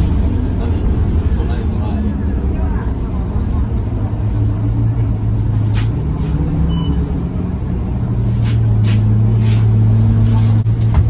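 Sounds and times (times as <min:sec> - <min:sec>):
bus diesel engine humming: 0:00.0 - 0:11.0.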